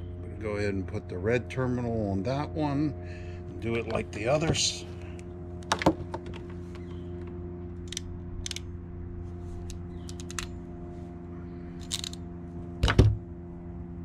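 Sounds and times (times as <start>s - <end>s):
low hum: 0.0s - 14.0s
crimping tool clicking: 7.9s - 8.7s, 9.6s - 10.5s, 11.8s - 12.2s.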